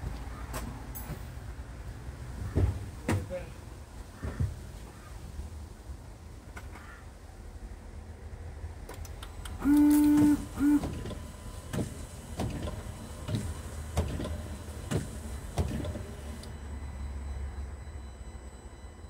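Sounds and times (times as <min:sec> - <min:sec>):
electric wiper motor whine: 0:08.9 - 0:17.9.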